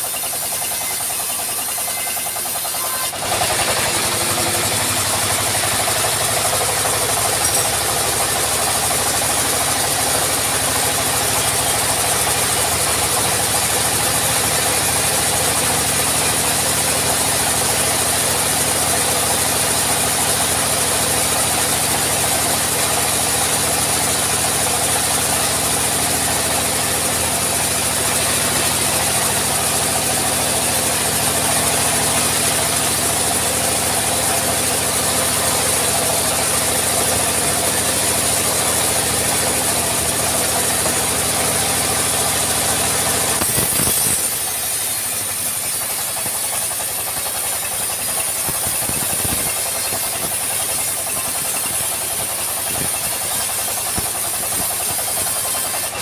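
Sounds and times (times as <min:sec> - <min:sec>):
saw blade cutting hiss: 0:00.0 - 0:56.0
sawmill engine running: 0:00.0 - 0:56.0.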